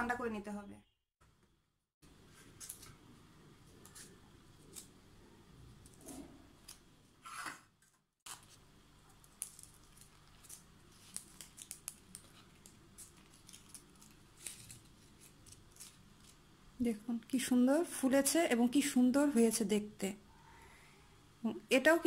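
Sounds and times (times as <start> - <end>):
paper cupcake liners rustling: 8.3 - 16.5.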